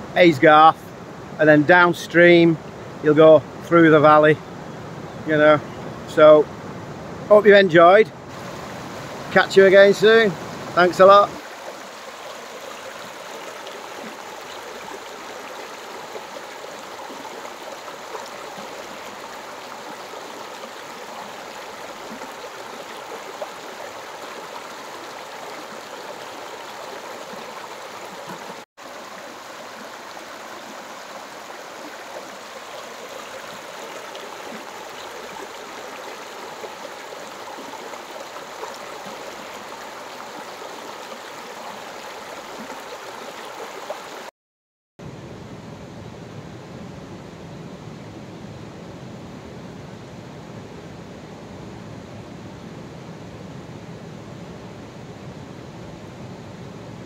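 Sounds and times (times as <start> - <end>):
river water rushing over rocks: 8.2 - 44.3.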